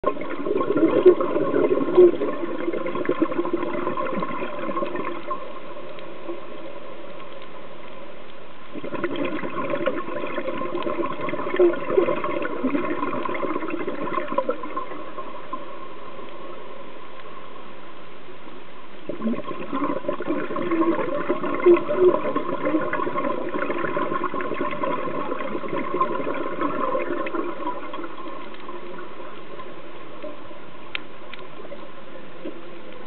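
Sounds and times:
underwater bubbles gurgling: 0.0s - 33.0s.

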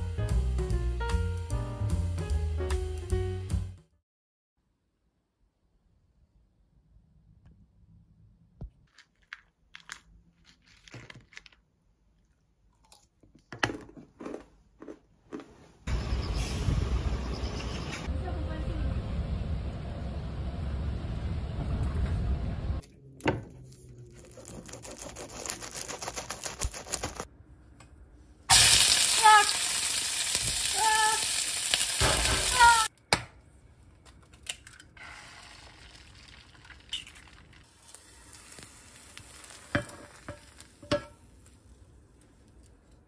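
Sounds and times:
low rumble of moving bus: 15.9s - 23.2s
vegetables sizzling in a pan: 28.5s - 32.9s, 37.0s - 41.6s.

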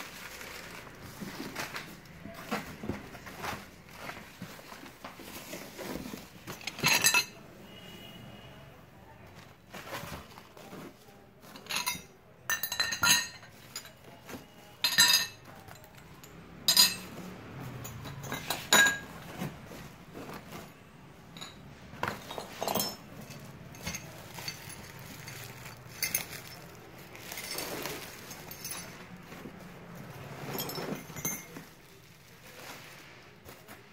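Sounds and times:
packing material rustling: 0.0s - 6.7s, 23.2s - 33.9s.

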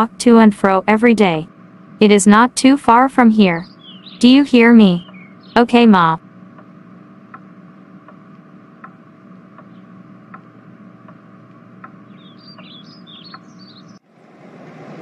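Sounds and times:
steady low hum: 0.0s - 15.0s
high bird chirps: 3.4s - 5.6s, 12.1s - 14.0s
soft ticking: 6.2s - 14.0s.

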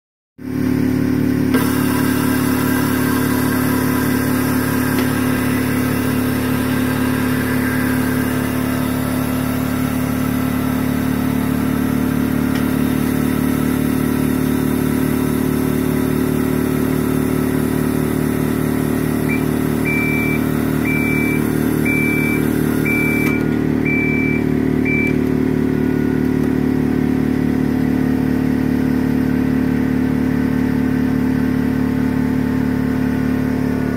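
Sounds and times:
short high beeps: 19.3s - 25.2s.

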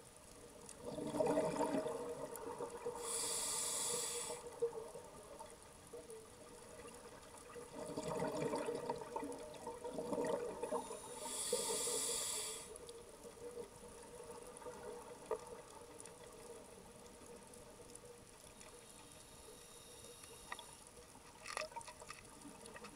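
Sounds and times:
bubbling underwater exhale: 0.8s - 4.8s, 7.7s - 12.6s
hissing regulator inhale: 2.9s - 4.6s, 10.8s - 12.9s, 18.9s - 20.9s.

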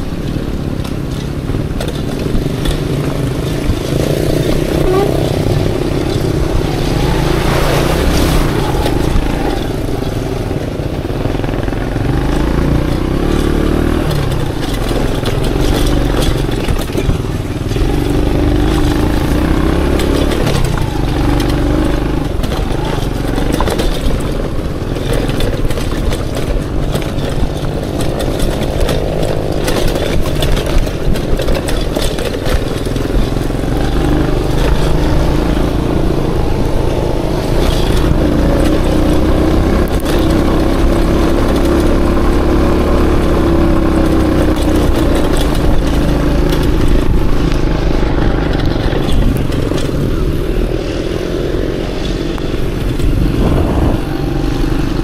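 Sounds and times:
knocks and rattles: 0.0s - 55.0s
motorcycle engine running: 0.0s - 55.0s.

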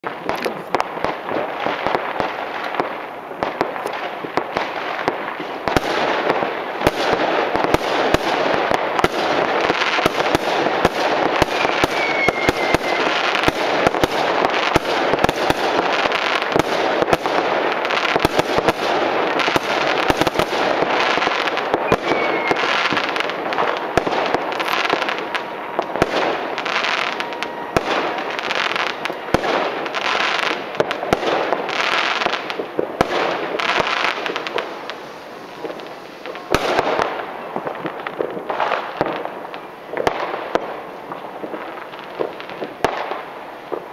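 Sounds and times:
fireworks bangs and crackles: 0.0s - 43.9s
falling whistle: 11.4s - 13.2s, 21.9s - 22.9s.

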